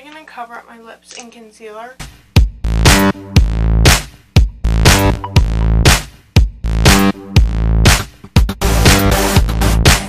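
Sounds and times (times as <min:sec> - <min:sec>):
drum machine beat: 0:02.0 - 0:10.0
sustained bass notes: 0:02.4 - 0:10.0.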